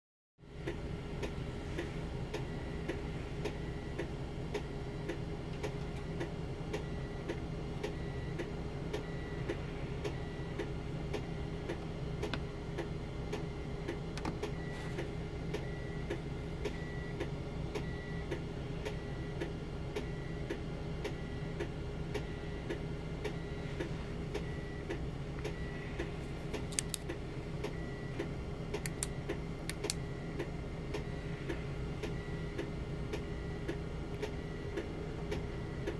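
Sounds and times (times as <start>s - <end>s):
constant low hum: 0.4s - 35.9s
sharp clicks: 26.5s - 27.8s, 28.7s - 30.0s.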